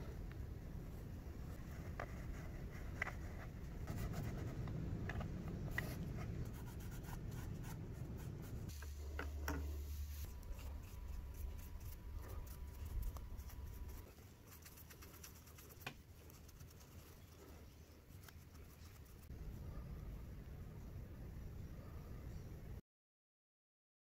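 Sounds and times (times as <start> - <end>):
fingertip rubbing on letter: 10.2 - 17.3.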